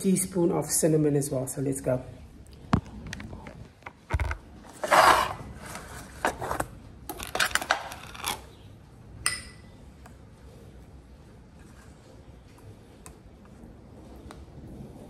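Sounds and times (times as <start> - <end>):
spoon scraping a bowl: 4.7 - 6.6
spoon clicks and taps on bowl: 9.2 - 9.6.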